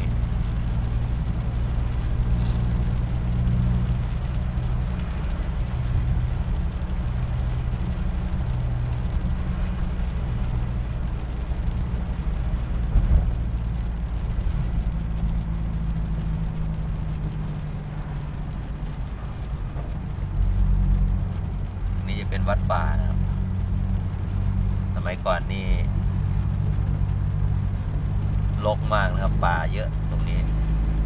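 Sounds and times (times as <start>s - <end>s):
car engine and road drone: 0.0s - 31.0s.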